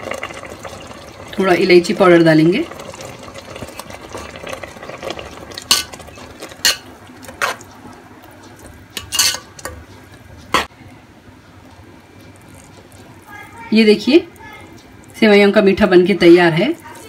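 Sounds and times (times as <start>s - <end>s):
metal spatula scraping metal pot: 9.0s - 9.8s.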